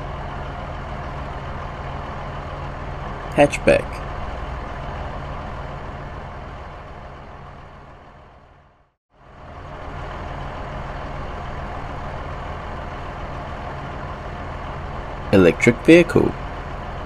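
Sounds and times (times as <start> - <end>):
car engine running: 0.0 - 17.0.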